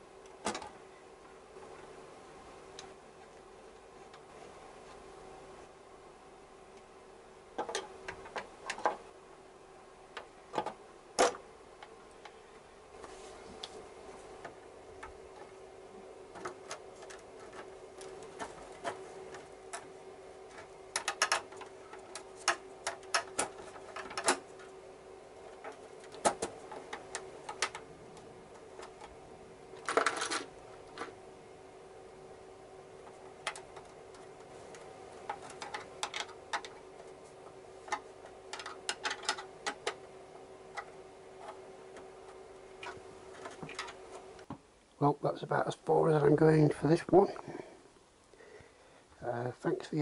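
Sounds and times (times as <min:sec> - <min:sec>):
faint steady hum: 0:00.0 - 0:50.0
plastic parts clicking and knocking: 0:00.3 - 0:00.7, 0:07.6 - 0:09.0, 0:10.1 - 0:12.4, 0:16.3 - 0:19.9, 0:20.5 - 0:24.7, 0:25.5 - 0:29.2, 0:29.8 - 0:31.2, 0:33.0 - 0:44.6
plastic parts rattling: 0:07.6 - 0:09.0, 0:16.3 - 0:19.9, 0:20.5 - 0:24.7, 0:25.5 - 0:27.9, 0:29.8 - 0:31.1, 0:33.0 - 0:37.1, 0:37.8 - 0:40.0, 0:42.8 - 0:44.1.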